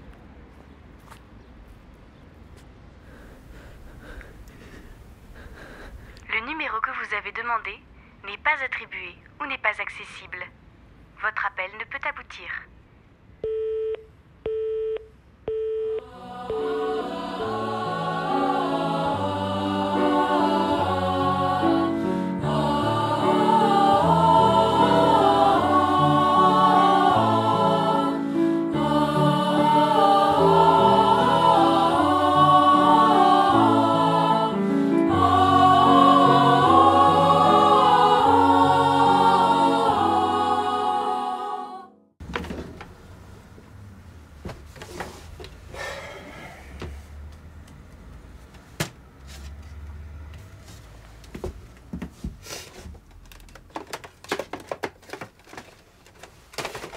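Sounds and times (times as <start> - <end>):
telephone busy-tone beeps: 13.4 - 16.8
a cappella vocal ensemble: 15.8 - 42.1.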